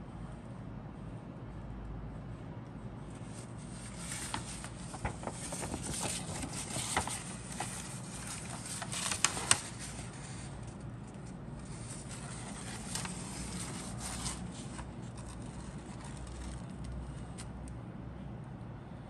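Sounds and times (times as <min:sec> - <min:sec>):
steady low hum: 0:00.0 - 0:19.0
paper rustling: 0:03.1 - 0:17.5
paper snapping: 0:04.0 - 0:10.0.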